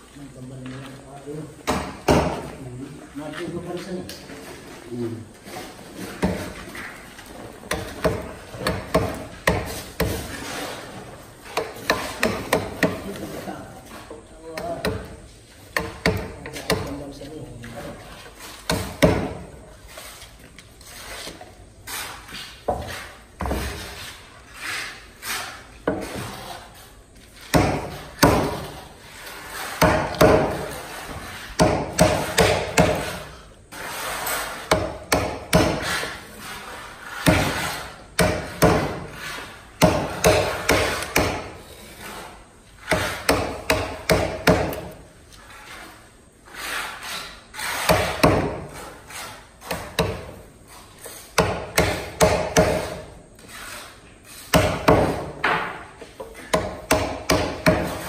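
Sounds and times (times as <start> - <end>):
hammer striking wood chisel: 1.6 - 2.5, 7.7 - 10.3, 11.6 - 13.0, 15.8 - 17.0, 18.6 - 19.5, 27.5 - 28.7, 29.8 - 30.7, 31.6 - 33.2, 34.7 - 36.1, 37.2 - 39.1, 39.8 - 41.6, 42.9 - 45.0, 47.7 - 48.7, 49.6 - 50.4, 51.3 - 53.1, 54.5 - 58.0.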